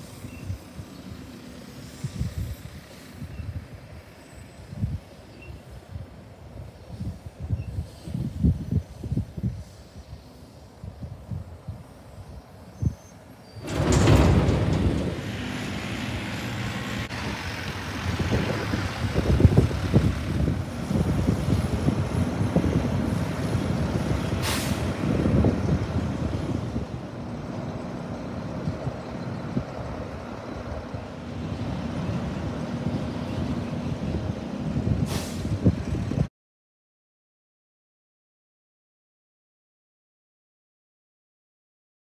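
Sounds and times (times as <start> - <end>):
air brake hiss: 0.0 - 3.4, 6.9 - 8.4, 9.5 - 10.6, 24.3 - 25.0, 35.0 - 35.7
garbage truck diesel engines: 0.0 - 36.3.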